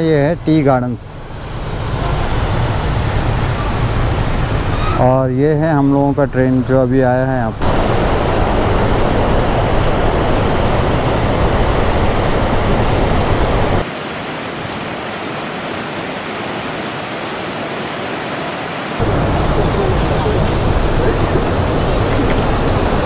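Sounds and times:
stream rushing over boulders: 0:07.6 - 0:23.0.

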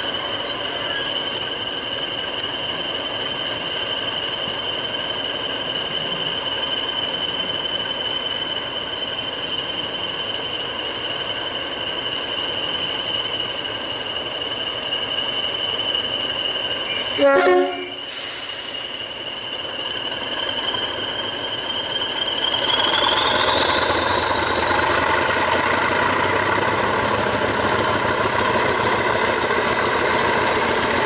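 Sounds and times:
diesel engine rumble: 0:00.0 - 0:31.0
turbocharger whistle: 0:12.6 - 0:19.2, 0:20.0 - 0:31.0.

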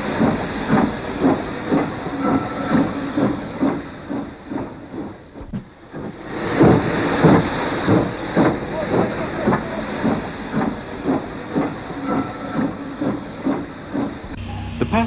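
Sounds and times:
steam hissing: 0:00.0 - 0:15.0
steam locomotive exhaust puffs: 0:00.0 - 0:15.0.

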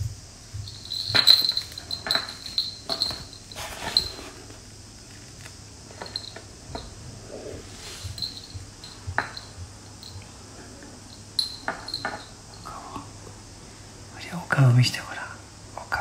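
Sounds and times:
cat collar bell jingling: 0:00.5 - 0:04.5, 0:05.9 - 0:06.9, 0:07.8 - 0:12.8.

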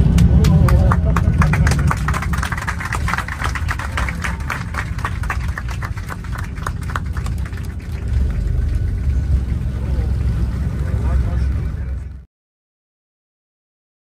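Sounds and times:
passengers clapping: 0:00.0 - 0:10.6
low rumble of airliner: 0:00.0 - 0:12.3.

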